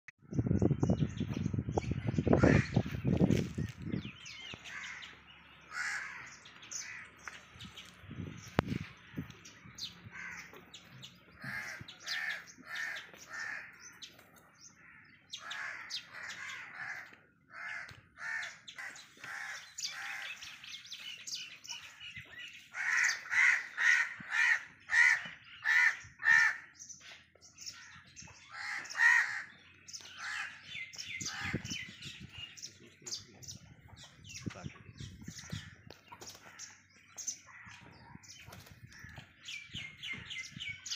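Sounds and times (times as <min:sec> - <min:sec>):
birds chirping: 0:00.2 - 0:40.9
birds calling harshly: 0:00.3 - 0:40.9.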